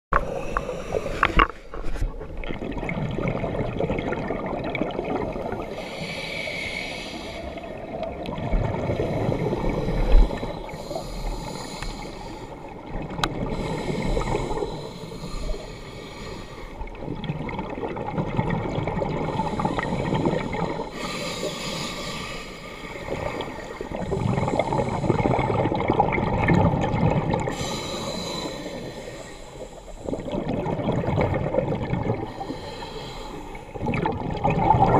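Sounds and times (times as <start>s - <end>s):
regulator inhale hiss: 0.2s - 1.7s, 5.7s - 7.6s, 9.1s - 12.6s, 13.5s - 16.8s, 19.3s - 25.5s, 27.5s - 30.3s, 32.3s - 33.8s
gurgling exhaled bubbles: 0.2s - 6.1s, 7.2s - 10.9s, 16.8s - 21.1s, 22.9s - 29.0s, 29.6s - 34.9s.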